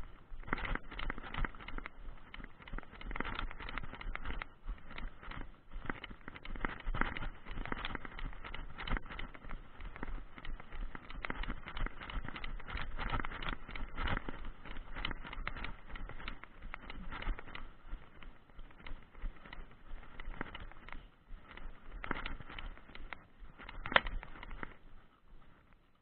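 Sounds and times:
horse hooves clopping: 0.0s - 26.0s.

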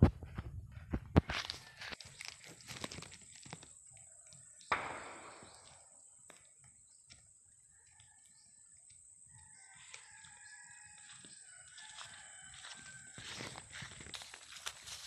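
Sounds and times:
rooster crowing: 1.3s - 2.0s, 9.3s - 13.9s.

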